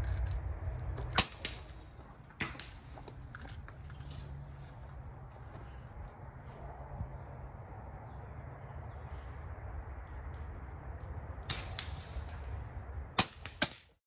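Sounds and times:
steady low rumble: 0.0 - 13.6
air rifle shots: 1.0 - 2.9, 11.4 - 12.4, 13.1 - 14.0
pellets striking metal targets: 1.0 - 3.1, 11.4 - 12.5, 13.1 - 14.0.

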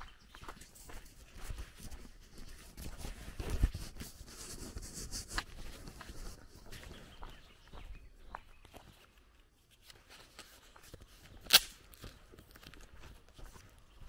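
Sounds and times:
footsteps on gravel: 0.0 - 9.0.

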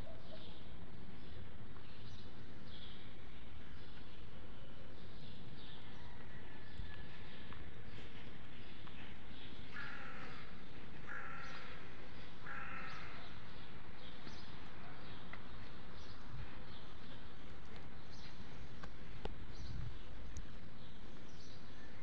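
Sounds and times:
small birds chirping: 0.0 - 22.0
bird harsh calls: 9.7 - 13.4.

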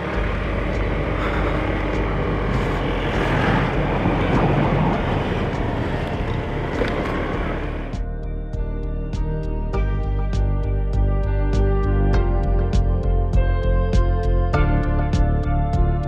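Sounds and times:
scooter engine cruising: 0.0 - 8.0
wind and road noise: 0.0 - 9.8.

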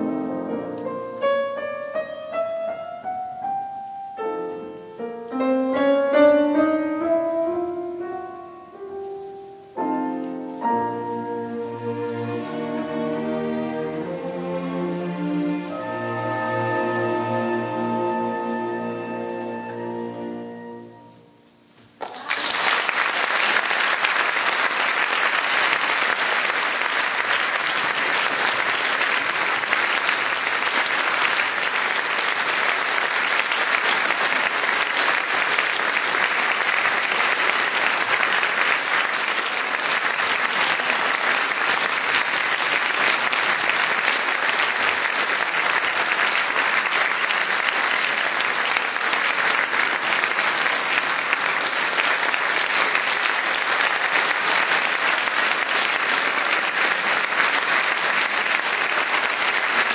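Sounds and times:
audience applauding: 22.0 - 59.9.

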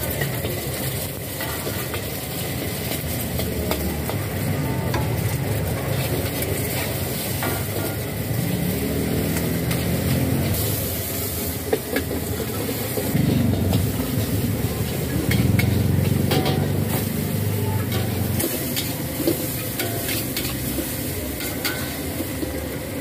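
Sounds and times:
gas burner low rumble: 0.0 - 23.0
egg sizzling in hot oil: 5.2 - 23.0
metal spatula scraping pan: 12.8 - 22.2.

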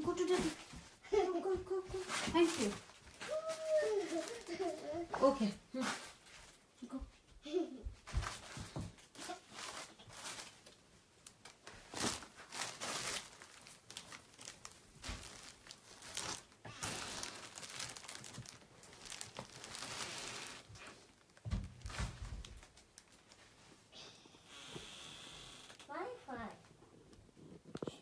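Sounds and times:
fabric rustling and crinkling: 0.0 - 6.8, 8.0 - 23.9.

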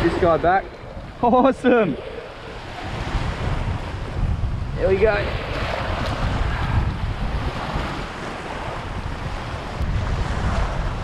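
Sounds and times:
small waves in shallow water: 0.0 - 11.0
wind buffeting microphone: 0.0 - 11.0.

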